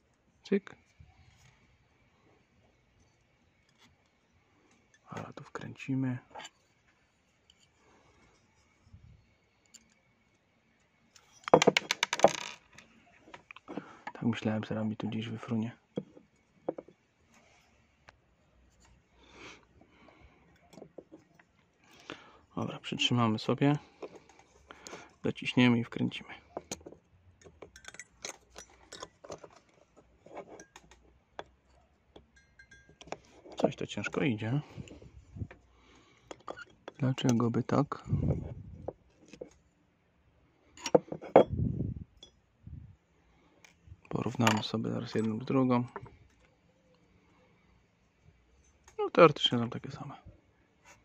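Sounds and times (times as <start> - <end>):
metal parts clinking: 26.5 - 31.5.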